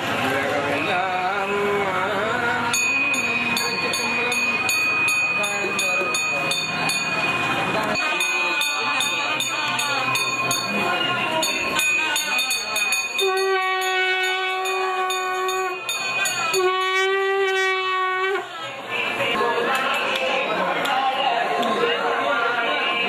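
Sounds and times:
voices: 0:00.0 - 0:23.0
conch shell blasts: 0:13.0 - 0:18.4.

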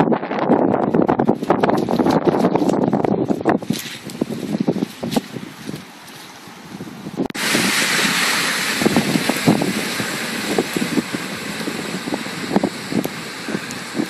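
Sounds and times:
wind buffeting microphone: 0:00.0 - 0:14.0
rushing water spray: 0:07.3 - 0:14.0
car driving through floodwater: 0:07.4 - 0:14.0.

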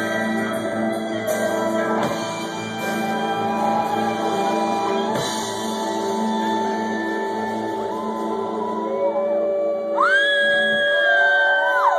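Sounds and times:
electric bass guitar: 0:00.0 - 0:11.1.

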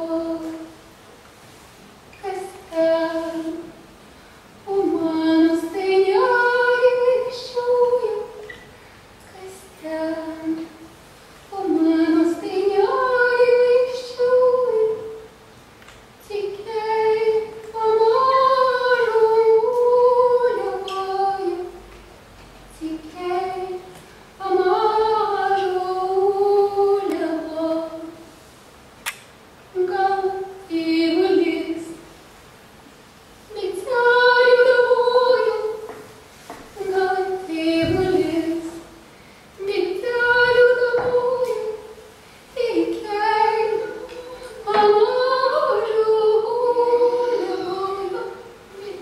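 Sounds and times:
high solo voice singing: 0:16.2 - 0:21.8, 0:39.6 - 0:42.0, 0:42.6 - 0:49.0
sharp click: 0:29.0 - 0:29.3.

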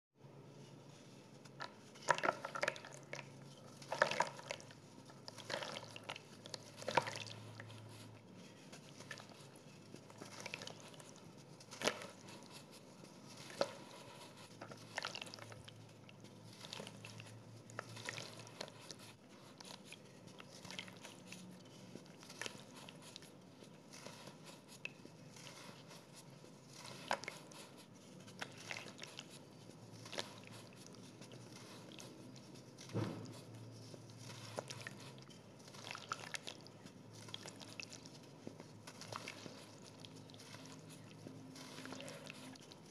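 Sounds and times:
crumbs falling into water: 0:01.6 - 0:04.8.

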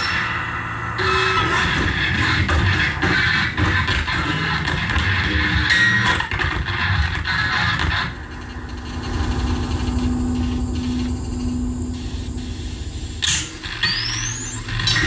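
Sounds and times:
dense electronic noise texture: 0:00.0 - 0:15.0
low rumbling drone: 0:07.5 - 0:15.0.

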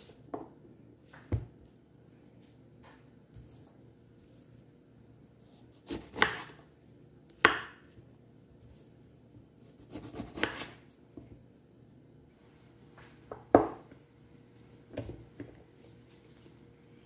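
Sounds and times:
knife cutting lemons: 0:05.7 - 0:06.6, 0:09.6 - 0:10.8.

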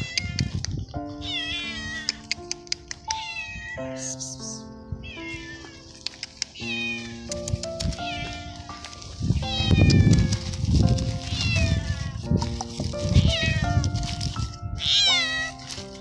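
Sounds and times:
cat meowing loudly: 0:00.0 - 0:00.6, 0:01.2 - 0:02.2, 0:03.0 - 0:04.2, 0:05.0 - 0:06.0, 0:06.6 - 0:07.3, 0:07.9 - 0:08.7, 0:09.4 - 0:10.4, 0:11.3 - 0:12.3, 0:13.2 - 0:13.8, 0:14.8 - 0:15.6
background music with sustained notes: 0:00.0 - 0:16.0.

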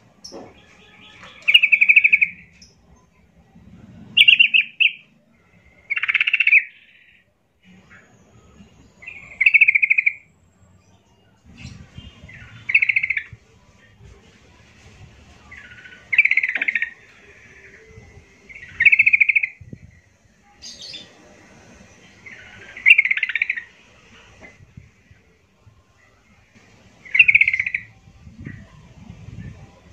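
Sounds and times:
bird warbling song: 0:00.2 - 0:03.1, 0:04.1 - 0:10.3, 0:11.1 - 0:13.4, 0:15.4 - 0:21.2, 0:22.0 - 0:24.6, 0:27.0 - 0:29.8.

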